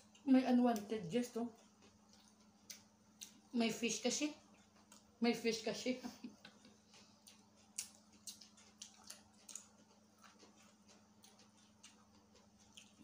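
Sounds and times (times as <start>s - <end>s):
low steady hum: 0.0s - 13.0s
mouth clicks and chewing: 0.0s - 13.0s.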